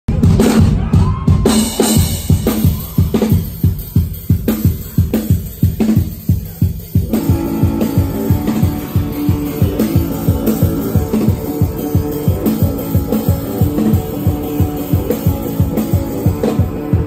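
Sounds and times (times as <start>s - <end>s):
drum kit beat: 0.1s - 17.0s
sustained instrument notes: 7.1s - 17.0s.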